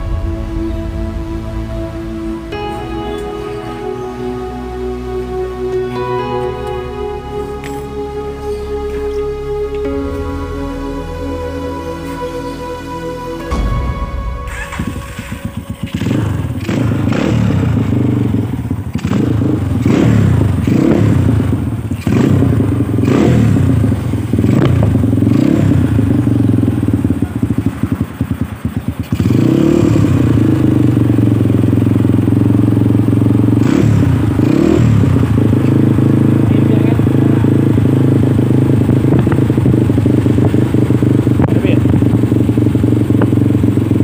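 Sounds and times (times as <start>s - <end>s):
motorcycle engine revving: 14.5s - 44.0s.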